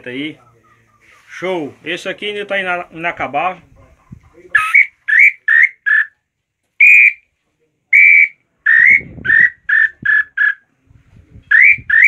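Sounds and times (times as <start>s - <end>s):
whistled bird call notes: 4.6s - 6.1s, 6.8s - 7.2s, 8.0s - 10.6s, 11.5s - 12.0s.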